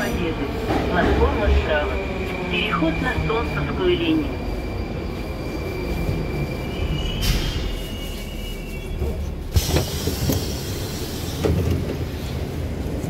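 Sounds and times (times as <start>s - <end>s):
thin train whine: 0.0s - 12.7s
train low rumble: 0.0s - 13.0s
train doors opening: 6.1s - 12.5s.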